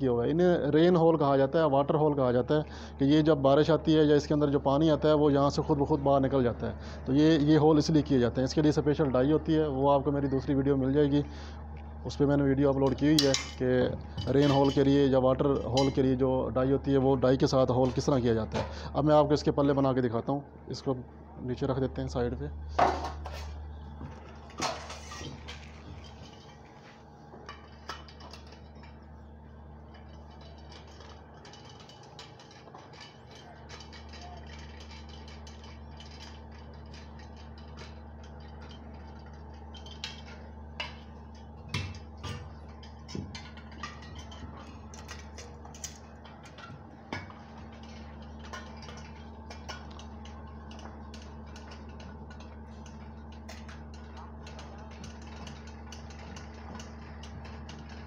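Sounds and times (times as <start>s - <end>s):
steady low hum: 0.0s - 58.0s.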